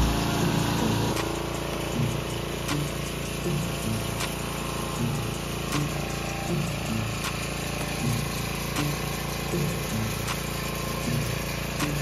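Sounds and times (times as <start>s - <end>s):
high-pressure water jet rushing: 0.0s - 12.0s
power washer motor droning: 0.0s - 12.0s.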